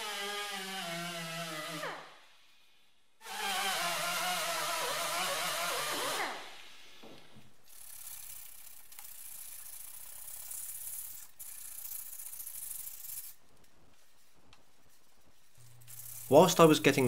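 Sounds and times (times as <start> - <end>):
air tool spinning down: 3.2 - 7.1
sandpaper rubbing on steel: 14.8 - 17.0.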